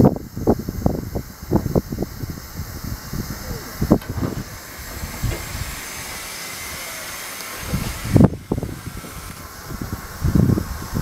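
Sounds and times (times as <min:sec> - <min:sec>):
steam hissing from locomotive: 0:00.0 - 0:11.0
low thumps: 0:03.6 - 0:09.5.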